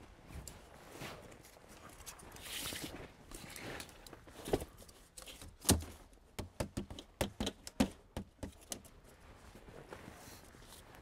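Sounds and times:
plastic crates knocking and clacking: 5.6s - 8.8s.

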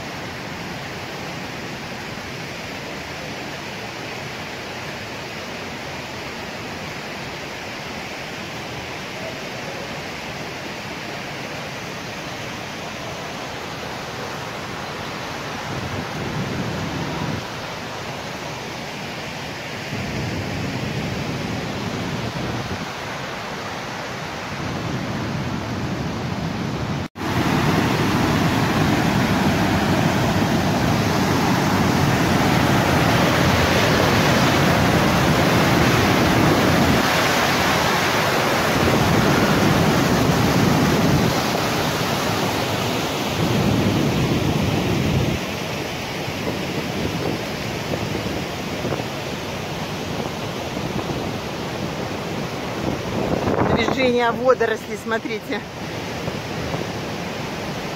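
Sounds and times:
waterfall rushing: 0.0s - 57.9s.

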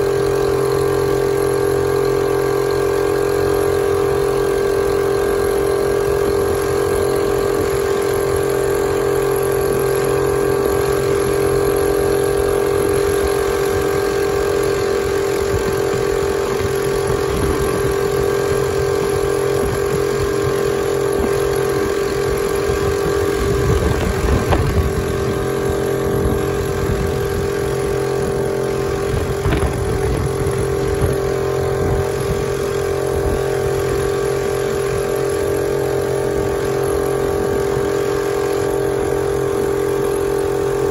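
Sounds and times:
outboard motor running: 0.0s - 40.9s
low rumble: 23.1s - 32.6s.

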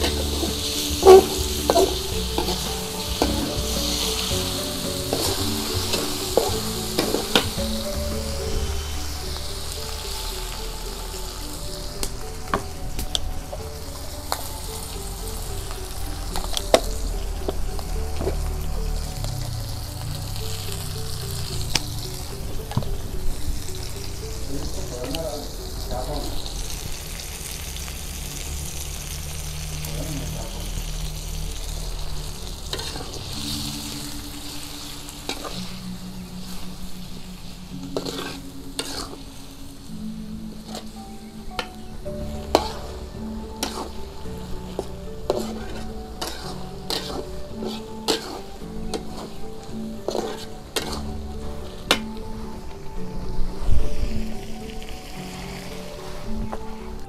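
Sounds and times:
metal spatula scraping and knocking pan: 0.0s - 7.9s, 37.8s - 39.3s, 42.4s - 44.1s, 44.7s - 52.2s
food sizzling in a wok: 0.0s - 57.0s
soft background music: 0.0s - 57.0s.

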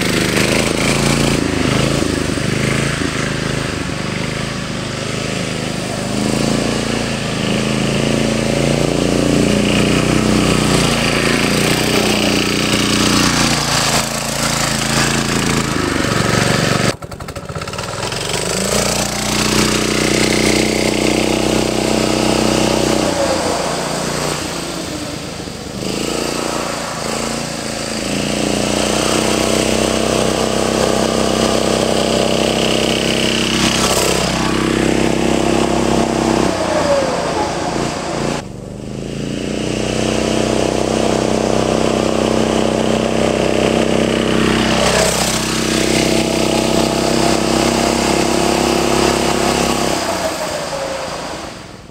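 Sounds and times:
mini bike engine passing: 0.0s - 51.9s.

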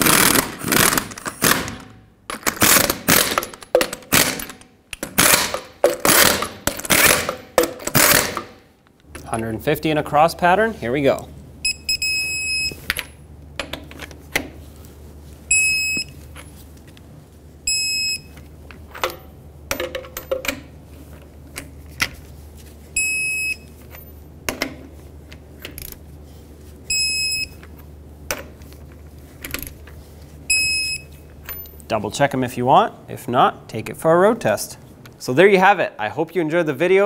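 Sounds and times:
torque wrench beeping: 11.6s - 12.8s, 15.5s - 16.2s, 17.7s - 18.3s, 23.0s - 23.7s, 26.9s - 27.6s, 30.5s - 31.2s.

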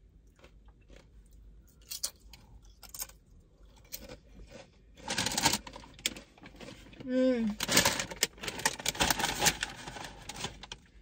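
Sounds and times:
chewing with crunches: 0.0s - 4.9s.

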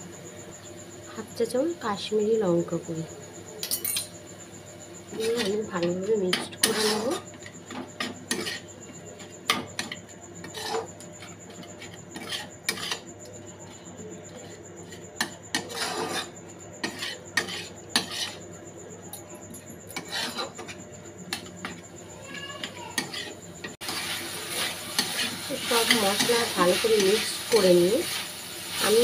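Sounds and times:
metal spatula scraping a wok: 5.1s - 8.8s, 9.6s - 13.1s, 14.3s - 18.5s, 19.9s - 21.5s, 22.6s - 29.0s.

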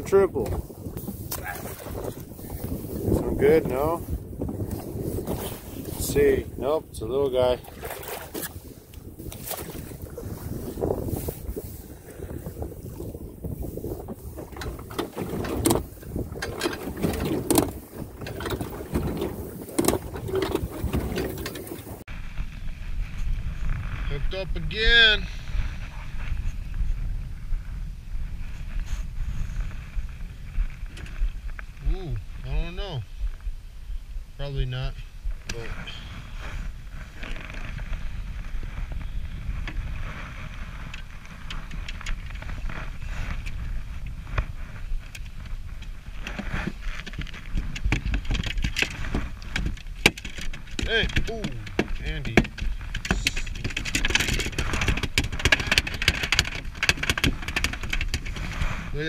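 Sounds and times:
wind buffeting microphone: 0.0s - 59.0s
water slapping against boat hull: 0.4s - 5.9s, 7.6s - 8.6s, 9.2s - 22.0s, 45.1s - 58.8s.

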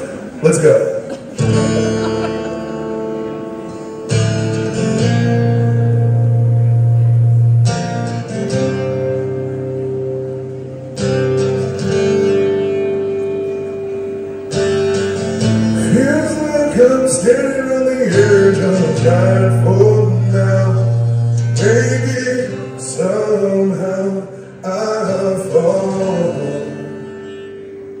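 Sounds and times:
acoustic guitar strumming: 0.0s - 28.0s
man singing: 15.8s - 27.1s.

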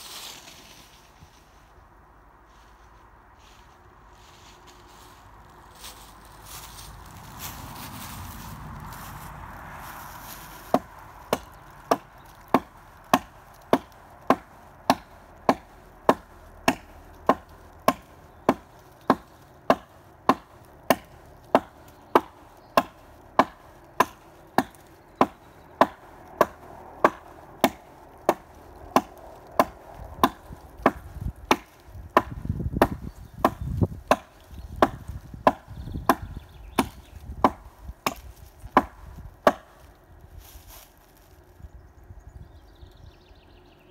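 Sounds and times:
hatchet chopping wood: 10.7s - 39.9s.

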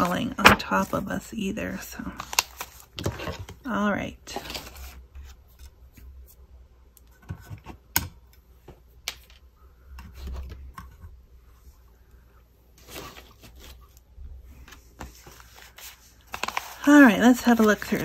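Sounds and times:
paper rustling: 2.0s - 3.6s, 12.8s - 18.0s.

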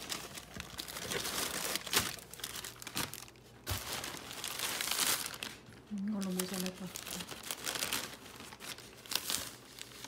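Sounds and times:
plastic bag rustling: 0.0s - 10.0s.

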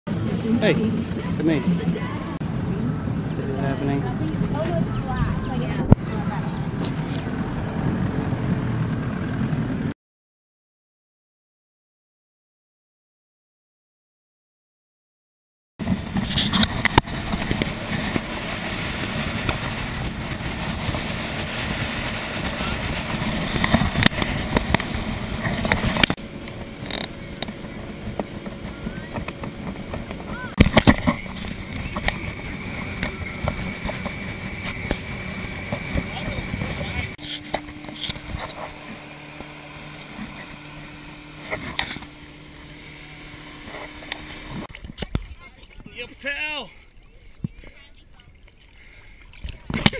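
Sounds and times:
outboard boat engine: 0.1s - 9.9s, 15.8s - 49.9s
water noise: 0.1s - 9.9s, 15.8s - 49.9s
wind on microphone: 0.2s - 9.9s, 15.8s - 45.9s.

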